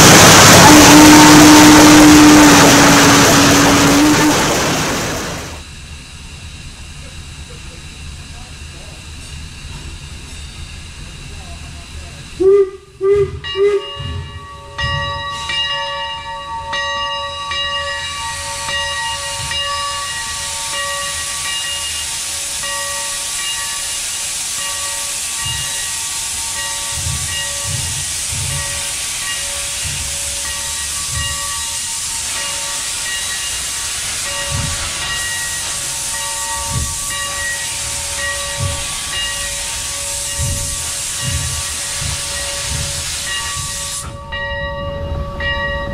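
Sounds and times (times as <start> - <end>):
steam locomotive whistle blasts: 0.0 - 5.5, 12.4 - 14.4
steam hissing: 0.0 - 16.2, 17.4 - 44.5.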